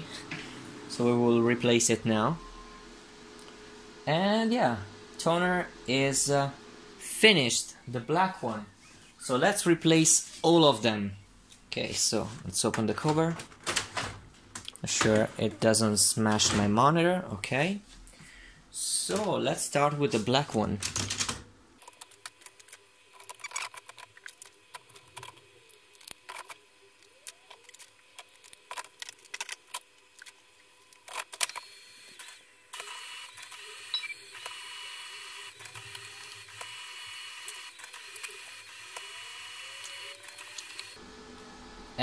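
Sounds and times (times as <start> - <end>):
printer warm-up mechanical hum: 0.0 - 9.5, 31.3 - 42.0.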